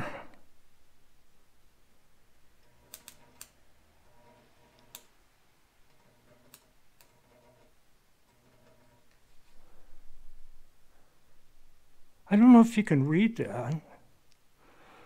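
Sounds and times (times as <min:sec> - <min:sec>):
faint electric buzz: 0:00.0 - 0:15.0.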